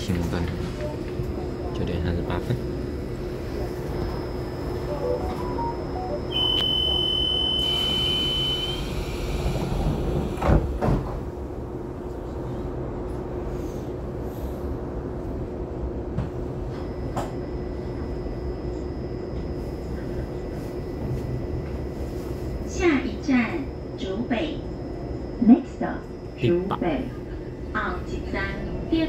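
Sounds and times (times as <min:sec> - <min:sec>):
train carriage hum: 0:00.0 - 0:29.0
high beep: 0:05.1 - 0:08.8
sliding doors shutting: 0:08.8 - 0:11.2.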